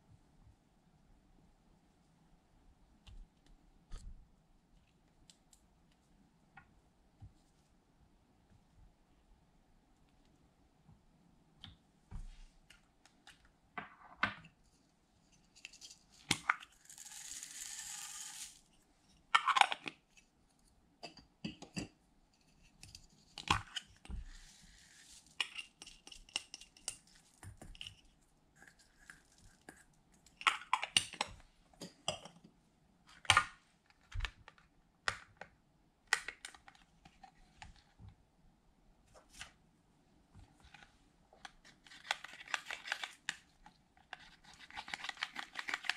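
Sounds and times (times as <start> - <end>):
foam beads poured into a dish: 16.7 - 18.6.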